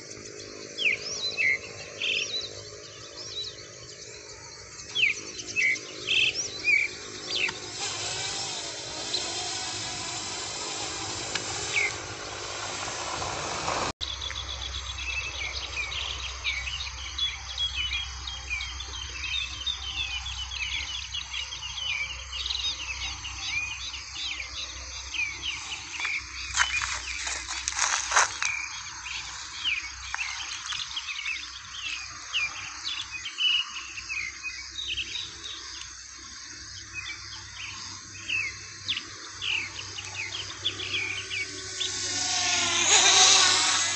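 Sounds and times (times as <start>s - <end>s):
flock of birds chirping: 0.0s - 43.9s
steady hiss: 7.3s - 14.0s, 35.4s - 43.9s.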